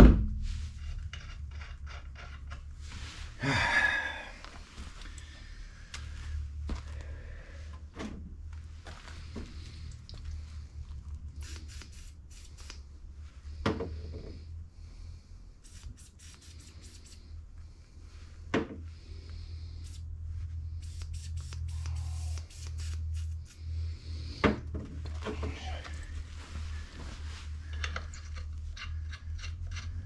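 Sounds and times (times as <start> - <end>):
steady low hum: 0.0 - 30.0
metal clicks and light scrapes: 27.7 - 30.0.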